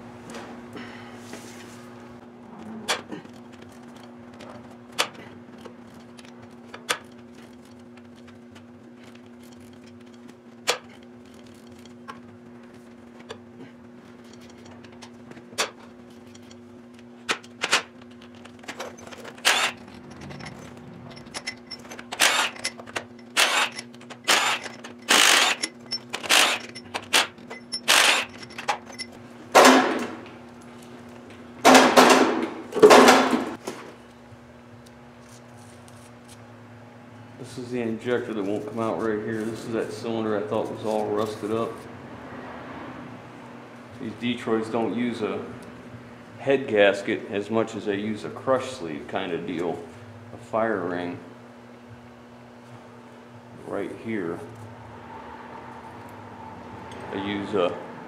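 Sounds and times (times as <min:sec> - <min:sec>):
steady low hum: 0:00.0 - 0:58.0
impact wrench bursts: 0:18.8 - 0:20.6, 0:21.2 - 0:30.0.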